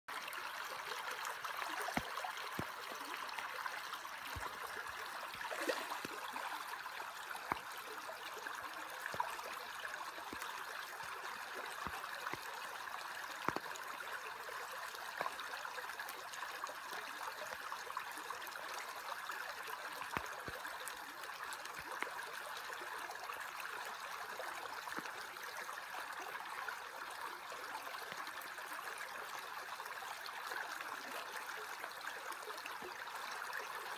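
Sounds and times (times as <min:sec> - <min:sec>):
creek water rippling over gravel: 0:00.1 - 0:14.5
small clicks and drips: 0:00.4 - 0:25.5.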